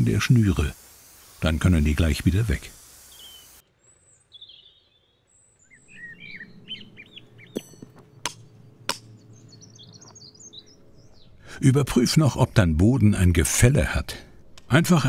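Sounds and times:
birds chirping and singing: 3.0s - 13.8s.

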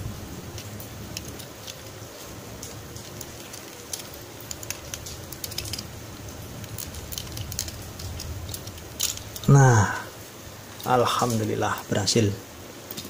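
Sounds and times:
hand drill clicking and scraping metal: 0.6s - 6.0s, 6.6s - 9.5s.

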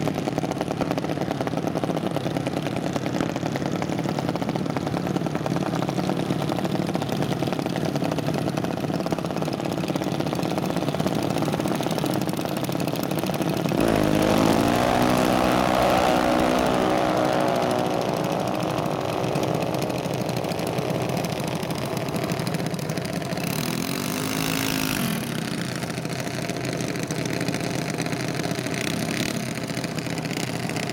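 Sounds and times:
dragster engine accelerating: 11.1s - 30.9s
second engine revving: 13.7s - 22.7s.

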